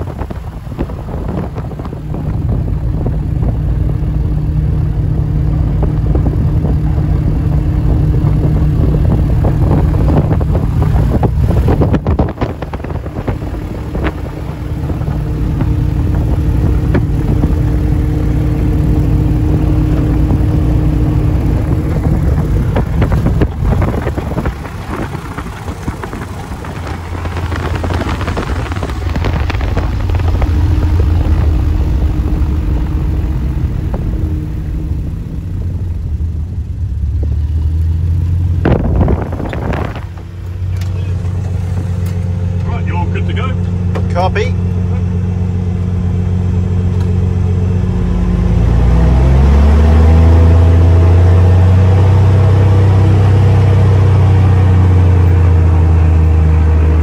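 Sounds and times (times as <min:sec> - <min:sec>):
airplane engine and propeller: 0:00.0 - 0:57.0.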